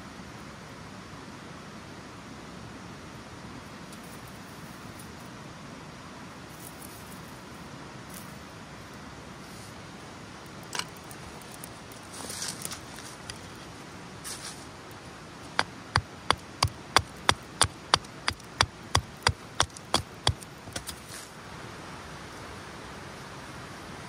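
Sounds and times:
fire crackling and hissing: 0:06.4 - 0:21.5
sharp knocks: 0:15.6 - 0:20.9.

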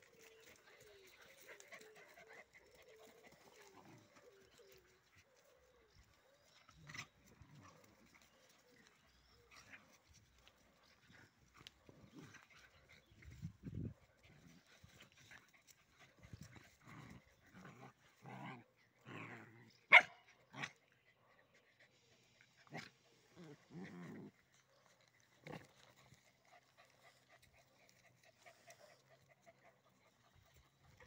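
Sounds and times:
dogs growling: 0:00.1 - 0:04.9, 0:16.1 - 0:20.8, 0:22.4 - 0:31.0
dog yelping: 0:19.9 - 0:20.7.

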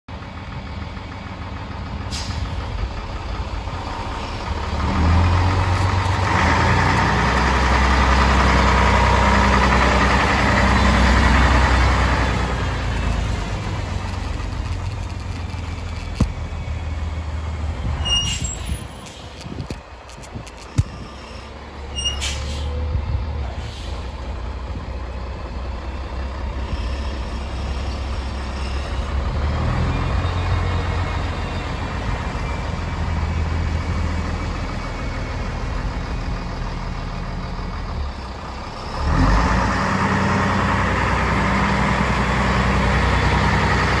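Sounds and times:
truck diesel engine running: 0:00.1 - 0:44.0
tyres on gravel: 0:12.2 - 0:21.6.

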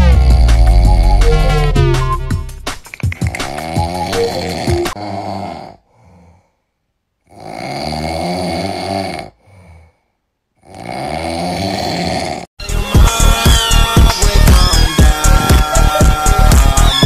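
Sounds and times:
loud snoring: 0:00.0 - 0:02.1, 0:03.3 - 0:06.4, 0:07.2 - 0:12.5
faint breath: 0:05.8 - 0:06.8, 0:09.4 - 0:10.3.

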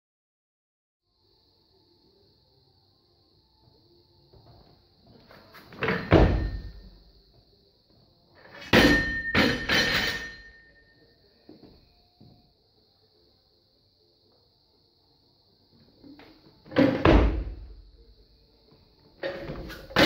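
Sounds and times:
barbell crashing onto floor: 0:05.8 - 0:06.8, 0:08.6 - 0:10.5, 0:16.8 - 0:17.7
barbell thud and plate clatter: 0:08.6 - 0:10.5
plates clanging and ringing: 0:08.6 - 0:10.8.

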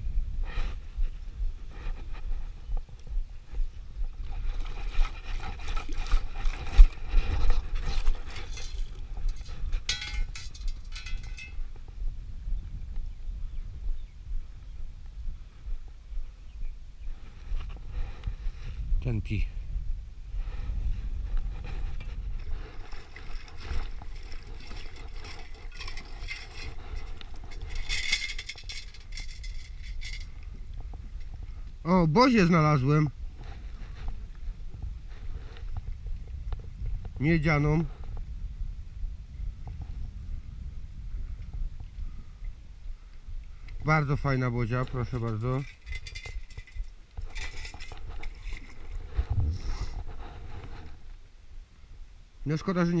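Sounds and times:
wind rumble on microphone: 0:00.0 - 0:53.0
water splashing and sloshing: 0:04.1 - 0:11.5, 0:22.2 - 0:30.2, 0:45.7 - 0:49.3
clinking and rattling in scoop: 0:07.4 - 0:11.6, 0:22.9 - 0:30.3.

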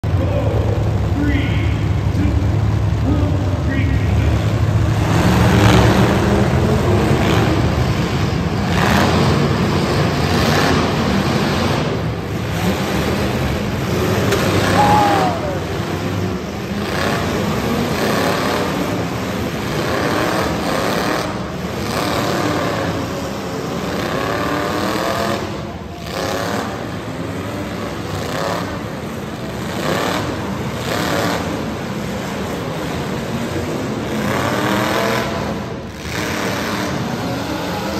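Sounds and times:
car engines revving hard: 0:00.0 - 0:37.9
cars crashing into each other: 0:08.6 - 0:19.0.

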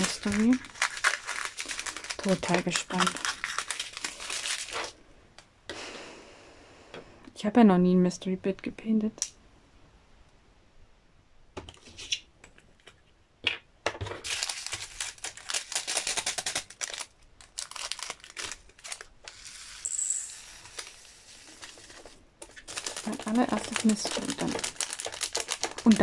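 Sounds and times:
plastic bag crinkling: 0:00.0 - 0:05.0, 0:14.2 - 0:19.4, 0:20.7 - 0:26.0.

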